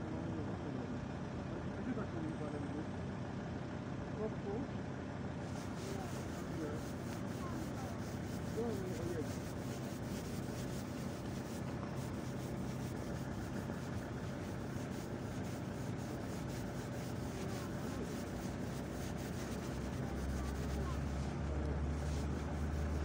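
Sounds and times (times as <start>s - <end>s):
distant diesel engine running: 0.0s - 23.0s.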